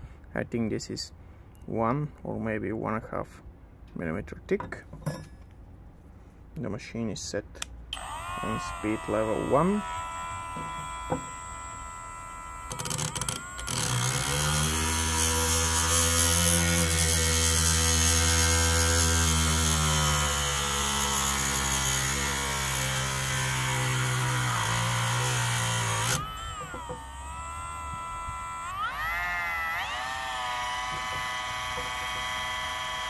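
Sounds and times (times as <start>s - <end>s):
rotary tool grinding metal: 8.0s - 33.0s.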